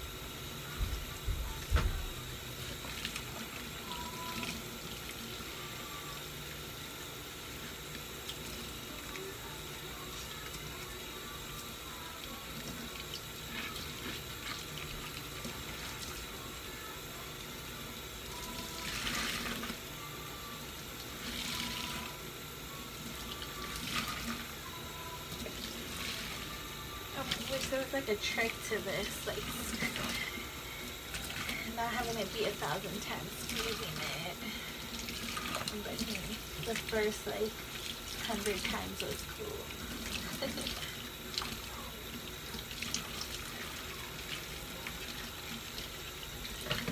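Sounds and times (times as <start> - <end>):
water splashes: 31.1 - 44.6.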